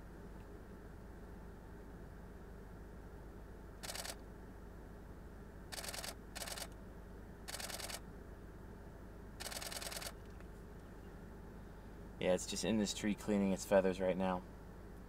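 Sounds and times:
camera shutter bursts: 0:03.8 - 0:04.2, 0:05.7 - 0:06.8, 0:07.5 - 0:08.0, 0:09.4 - 0:10.2.

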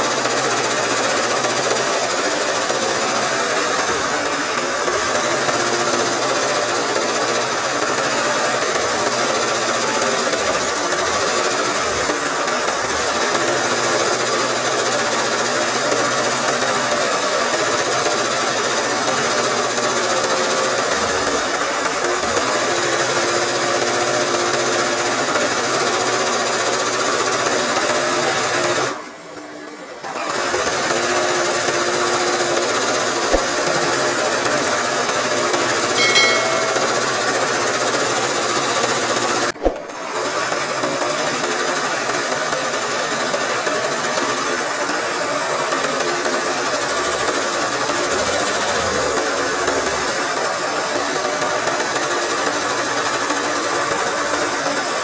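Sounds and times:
sewing machine running fast: 0:00.0 - 0:29.0, 0:40.0 - 0:55.0
sharp knock: 0:36.0 - 0:37.3.

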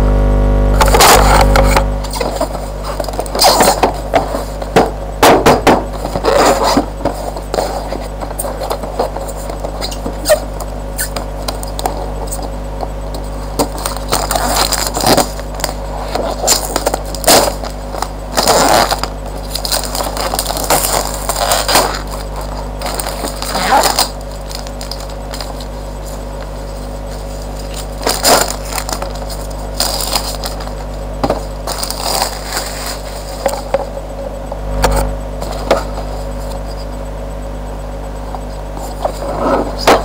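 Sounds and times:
steady low hum: 0:00.0 - 0:40.0
cardboard box rustling and scraping: 0:00.8 - 0:34.0, 0:38.3 - 0:40.0
plastic wrapping rustling: 0:02.0 - 0:34.0.

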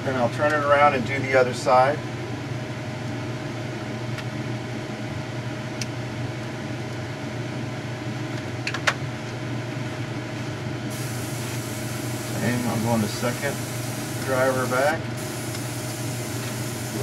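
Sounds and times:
exhaust fan whirring: 0:00.0 - 0:17.0
model locomotive motor: 0:10.9 - 0:17.0.

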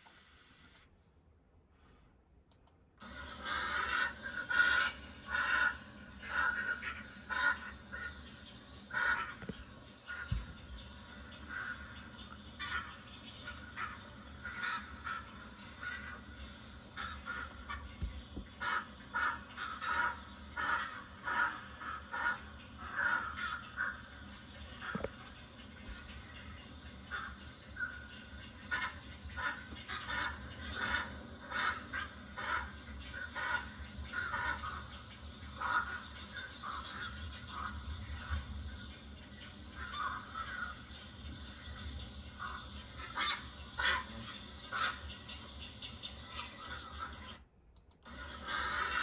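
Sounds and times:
heron squawking: 0:03.1 - 0:08.2.

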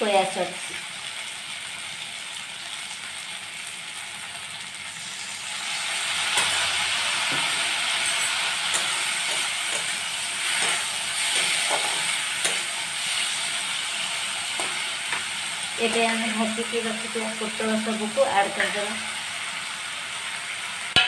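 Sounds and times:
vegetables sizzling in oil: 0:00.0 - 0:21.0
metal spatula scraping pan: 0:06.3 - 0:13.4, 0:14.5 - 0:15.3.

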